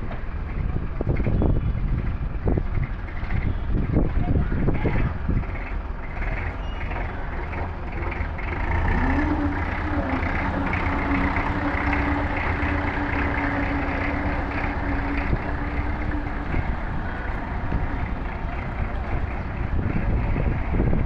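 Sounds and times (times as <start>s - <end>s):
forklift engine revving: 5.2s - 21.0s.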